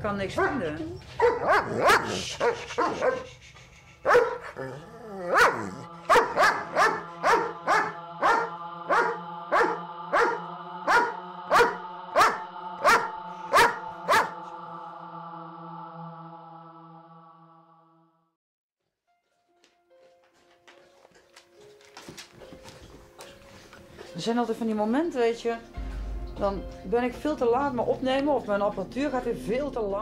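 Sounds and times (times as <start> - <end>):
dog barking: 0.4 - 3.3, 4.0 - 4.6, 5.3 - 14.4
music drone of held notes: 19.6 - 30.0.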